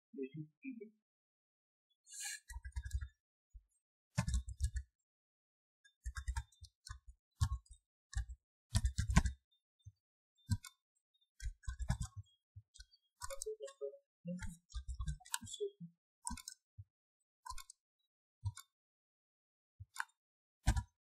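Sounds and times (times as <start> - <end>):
computer keyboard typing: 4.2 - 4.9, 7.6 - 9.4, 13.2 - 16.6.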